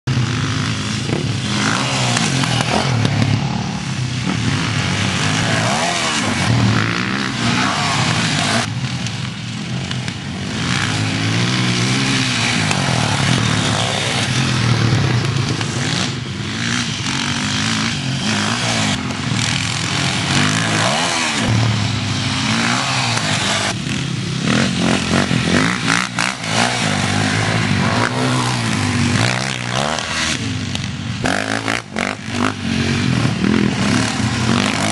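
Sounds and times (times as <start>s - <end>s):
dirt bike engines revving: 0.0s - 34.9s.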